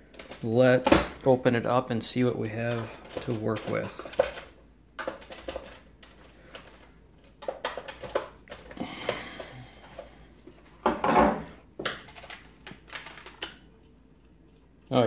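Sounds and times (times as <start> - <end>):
plastic clatter: 2.7 - 9.2.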